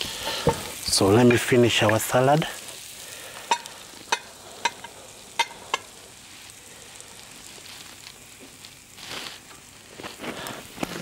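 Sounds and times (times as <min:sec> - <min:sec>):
food sizzling in a frying pan: 0:00.0 - 0:11.0.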